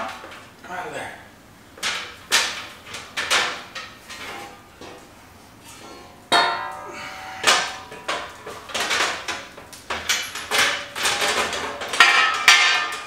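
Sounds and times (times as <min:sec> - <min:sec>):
steel frame clanking on metal: 0:05.6 - 0:13.0.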